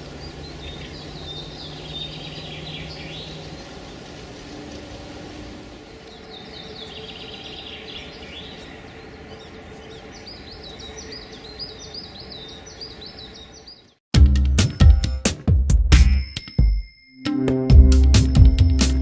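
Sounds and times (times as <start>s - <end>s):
birds singing: 0.0s - 14.0s.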